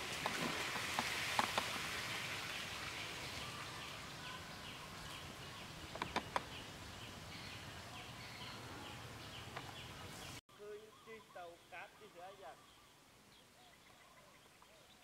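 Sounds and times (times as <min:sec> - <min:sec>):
steady outdoor hiss: 0:00.0 - 0:15.0
sharp clicks: 0:05.9 - 0:06.5.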